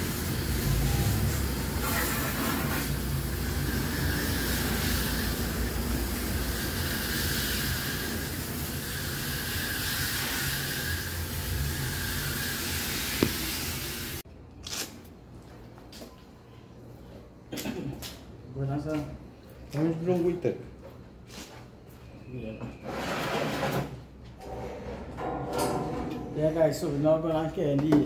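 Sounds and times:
hose spraying water: 0.0s - 14.2s.

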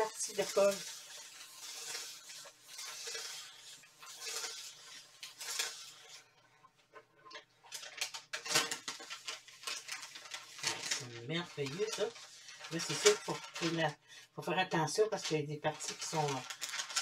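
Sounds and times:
paper crackling and crinkling: 0.0s - 6.3s, 7.3s - 14.0s, 15.0s - 17.0s
iron rustling over paper: 0.0s - 6.4s, 7.5s - 14.0s, 15.1s - 17.0s.

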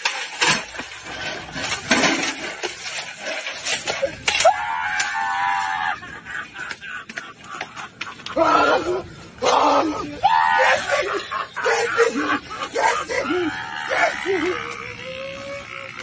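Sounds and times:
shrill drawn-out cry: 9.4s - 16.0s.

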